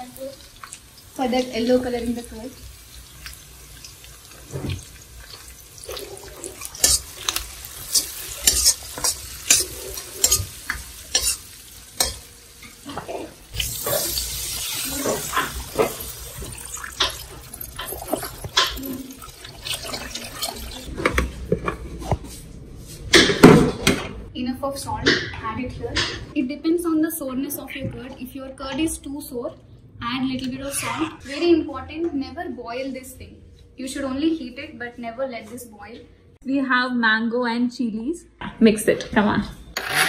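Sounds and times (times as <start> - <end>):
hissing sizzle: 0.0 - 20.9
spoon scraping against pan: 6.0 - 20.9, 39.8 - 40.0.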